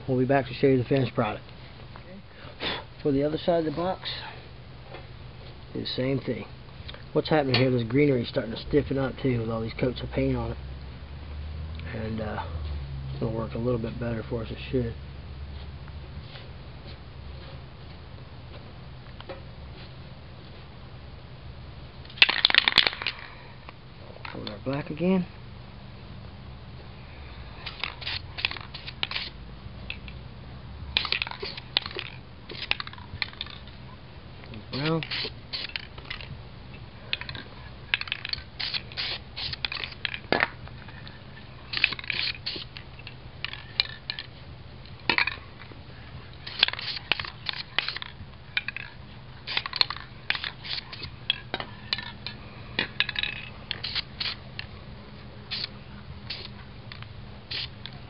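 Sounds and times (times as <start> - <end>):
spray can ball rattling: 22.1 - 23.3, 27.6 - 30.2, 30.9 - 33.7, 34.7 - 36.3, 37.1 - 41.1, 41.7 - 44.3, 46.4 - 54.7, 55.5 - 57.9
spray paint bursts: 22.2 - 23.2, 27.6 - 29.4, 30.9 - 33.6, 34.7 - 36.3, 37.9 - 40.2, 41.7 - 42.8, 46.4 - 51.2, 52.8 - 54.5, 55.5 - 56.6, 57.5 - 57.8.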